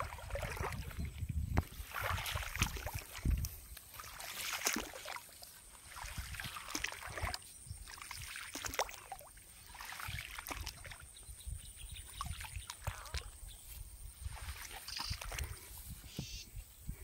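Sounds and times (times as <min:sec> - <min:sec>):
wind rumble on microphone: 0:00.0 - 0:03.7, 0:10.1 - 0:17.0.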